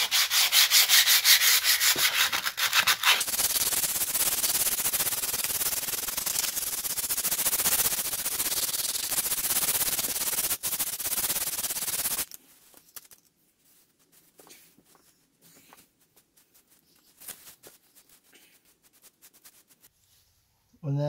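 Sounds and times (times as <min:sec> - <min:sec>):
sandpaper rasping on wall: 0:00.0 - 0:12.3
faint rustles and taps: 0:12.6 - 0:19.9.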